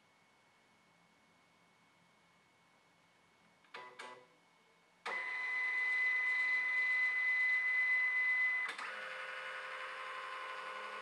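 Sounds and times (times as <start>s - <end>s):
scanner motor whine: 5.1s - 11.0s.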